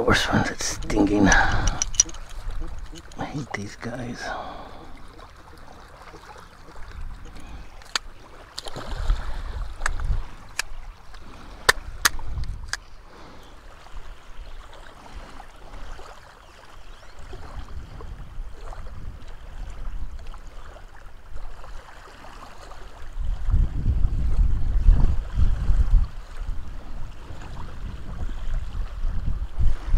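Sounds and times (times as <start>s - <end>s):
wind buffeting microphone: 0.0s - 5.2s, 6.7s - 16.0s, 16.8s - 20.6s, 23.0s - 29.9s
small waves lapping: 0.0s - 29.9s
sharp clicks: 0.7s - 3.2s
fish splashing into water: 8.2s - 9.9s.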